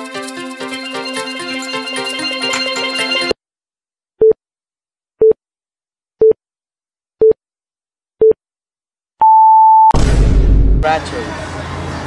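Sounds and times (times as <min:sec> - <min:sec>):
short electronic beeps: 0:09.2 - 0:09.9.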